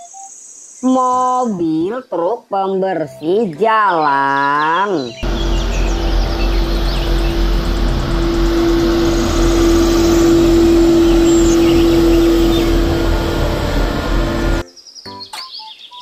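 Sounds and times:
street sweeper mechanical drone: 5.2 - 14.6.

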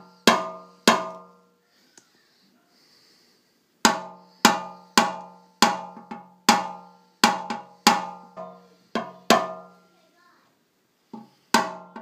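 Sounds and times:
hammer tapping sheet metal: 0.2 - 1.4, 3.8 - 9.7, 11.2 - 12.0.

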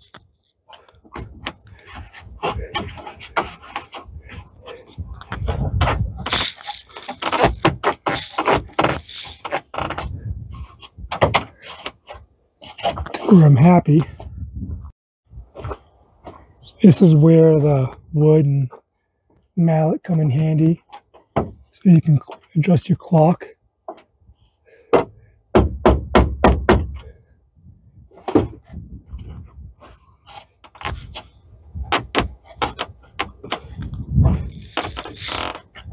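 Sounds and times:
door rattles: 4.2 - 10.1
vehicle door knocking and rattling: 24.9 - 27.1.

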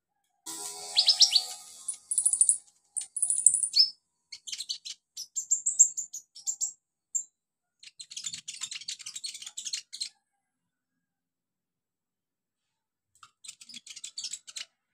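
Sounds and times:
sunbird chirping and trilling: 0.5 - 6.7.

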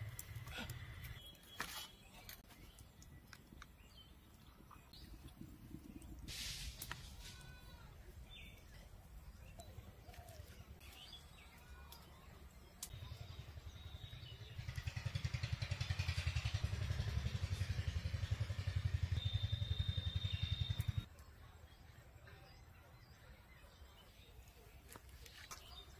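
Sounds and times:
small engine puttering: 13.9 - 21.1
bird chirps: 18.3 - 21.1.

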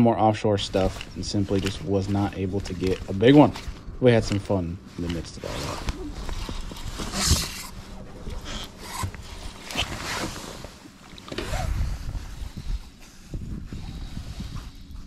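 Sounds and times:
rain jacket rustling: 0.0 - 15.0
wind rumbling on microphone: 11.3 - 15.0.

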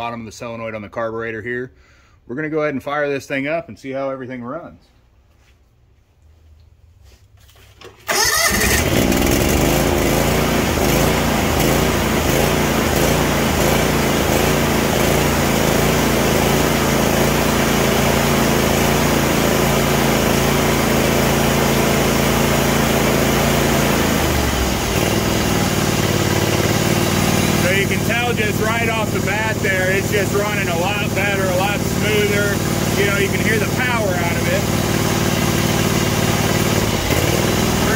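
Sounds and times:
mower engine running: 8.0 - 37.9.

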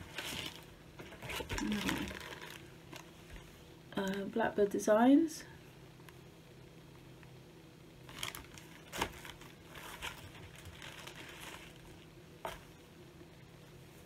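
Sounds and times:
fabric crinkling and rustling: 0.0 - 3.6, 8.0 - 12.8.

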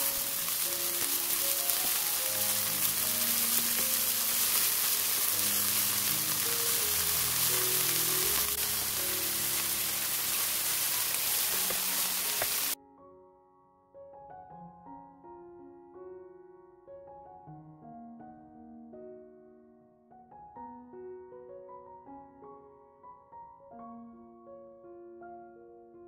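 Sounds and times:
meat sizzling in oil: 0.0 - 12.8
piano music: 0.0 - 26.0.

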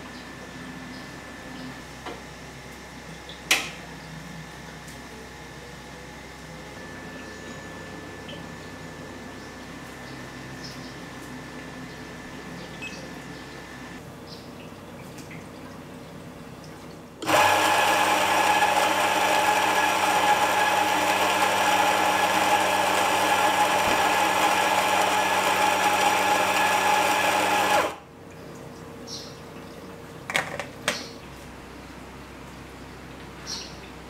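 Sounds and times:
coffee grinder whirring: 17.2 - 28.0.

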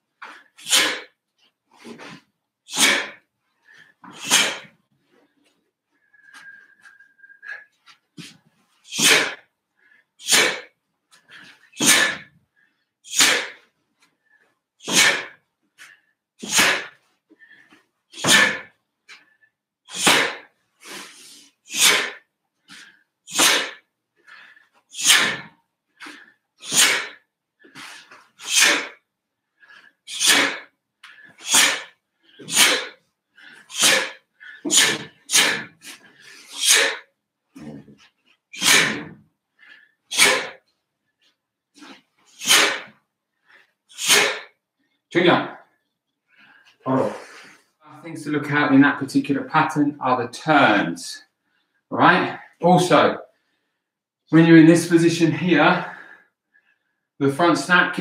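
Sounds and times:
sharp forceful breaths out: 0.2 - 1.2, 1.8 - 4.8, 6.0 - 40.7, 41.8 - 45.0, 46.3 - 47.8, 55.8 - 57.1.

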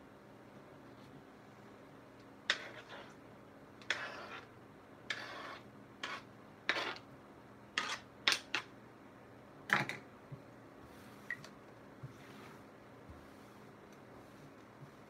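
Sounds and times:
knife scraping cutting board: 2.5 - 3.2, 3.8 - 4.5, 5.1 - 7.1, 7.8 - 8.4.

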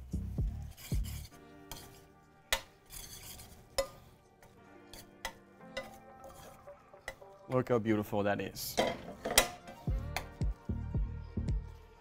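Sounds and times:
spoon stirring in a pan: 0.5 - 7.6, 8.6 - 10.6.

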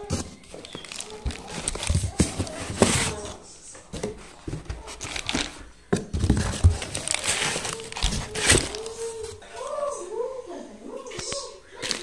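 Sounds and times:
cardboard box rustling and knocking: 0.0 - 3.4, 4.0 - 9.4
plastic wrapping crinkling: 0.0 - 3.4, 4.0 - 9.8.

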